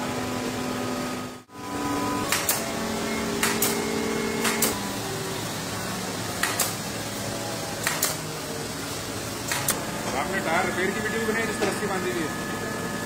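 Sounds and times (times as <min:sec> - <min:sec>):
workshop machine hum: 0:00.0 - 0:13.0
pneumatic stapler clicks: 0:02.3 - 0:02.6, 0:03.4 - 0:03.8, 0:04.4 - 0:04.8, 0:06.4 - 0:06.8, 0:07.8 - 0:08.2, 0:09.5 - 0:09.8.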